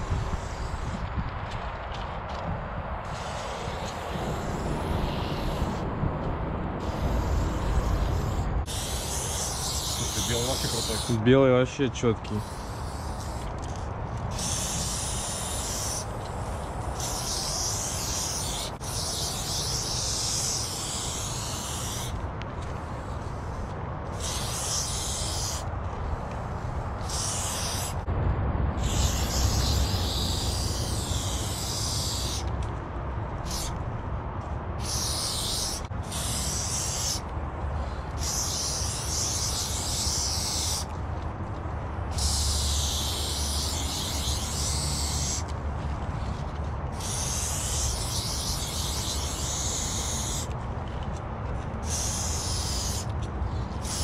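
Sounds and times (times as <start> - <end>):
spray paint can hissing: 0.0 - 1.1, 3.0 - 5.8, 6.8 - 28.1, 28.8 - 32.6, 33.4 - 33.8, 34.8 - 41.0, 42.1 - 45.6, 46.2 - 51.0, 51.8 - 54.0
low rumble: 28.0 - 31.5.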